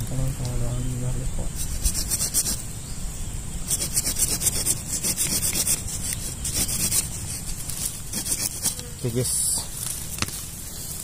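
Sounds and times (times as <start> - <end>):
hand tool scraping roots and soil: 1.5 - 2.6, 3.7 - 11.0.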